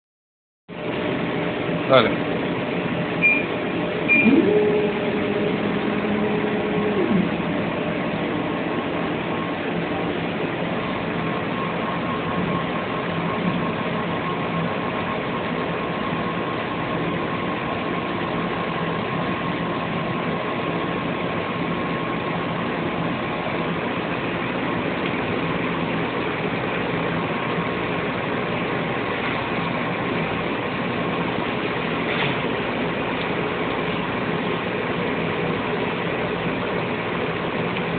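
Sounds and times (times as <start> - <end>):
laser cutter humming: 0.8 - 37.9
motor whine: 0.8 - 37.9
faint high tone: 4.1 - 7.4.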